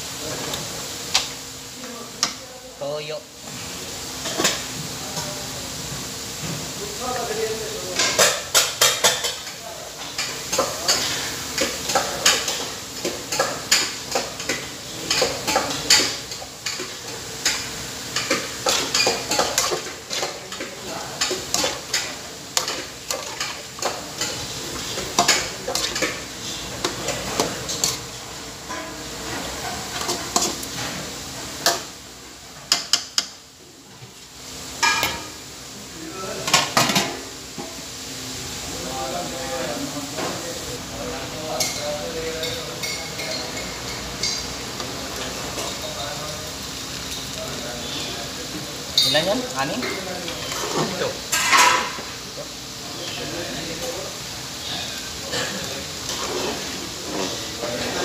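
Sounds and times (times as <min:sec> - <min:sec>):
meat sizzling: 0:07.6 - 0:33.6, 0:43.9 - 0:58.0.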